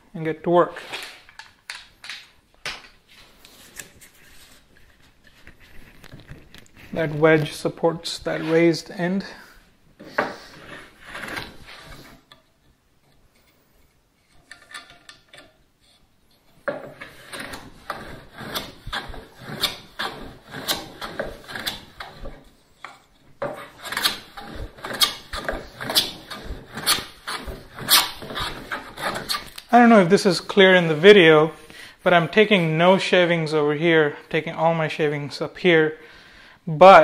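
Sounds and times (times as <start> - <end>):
hand plane swishing on wood: 16.9 - 22.4, 23.5 - 29.5.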